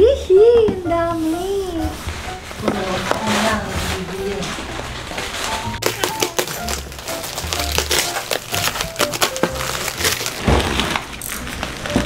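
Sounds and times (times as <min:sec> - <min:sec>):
background music: 0:00.0 - 0:12.0
plastic packaging crinkling: 0:02.1 - 0:12.0
paper tearing: 0:02.7 - 0:12.0.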